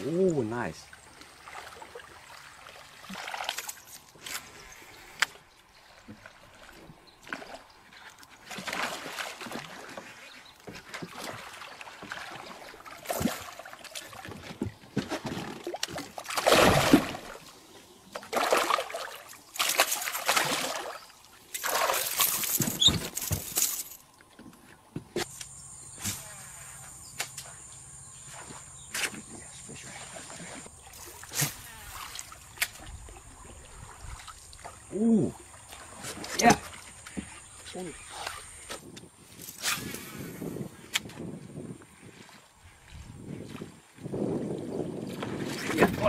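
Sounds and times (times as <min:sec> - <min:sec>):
fish splashing in water: 0:06.2 - 0:10.2, 0:10.8 - 0:17.5, 0:18.2 - 0:23.5.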